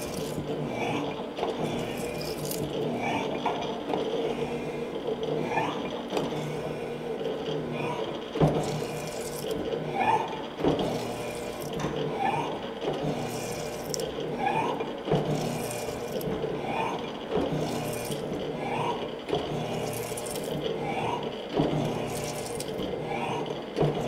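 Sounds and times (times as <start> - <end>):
machine humming: 0.0 - 24.0
cutting tool knocking and scraping: 8.4 - 9.6, 10.6 - 23.0, 23.8 - 24.0.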